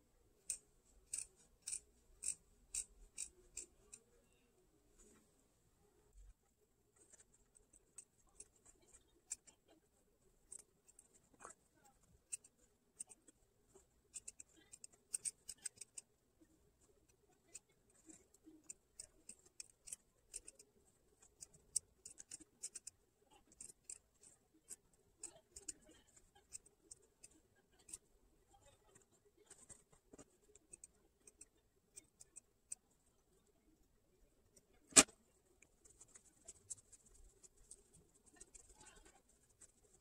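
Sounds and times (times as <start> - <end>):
small scissors snipping fabric: 0.4 - 4.1, 14.1 - 16.1, 17.0 - 28.0, 34.8 - 35.2.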